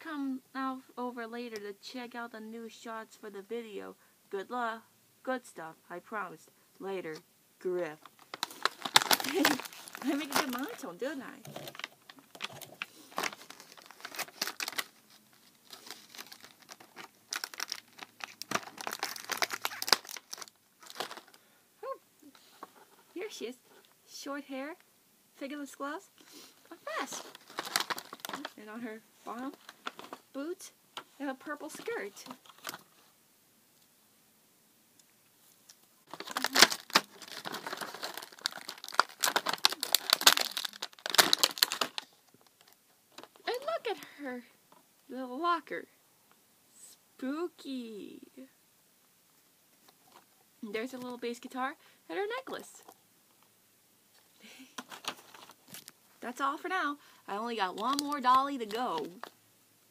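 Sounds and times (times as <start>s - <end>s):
plastic packaging crinkling: 8.0s - 21.5s, 26.8s - 30.4s, 31.0s - 33.1s, 35.5s - 44.2s, 54.1s - 56.0s, 57.5s - 59.4s.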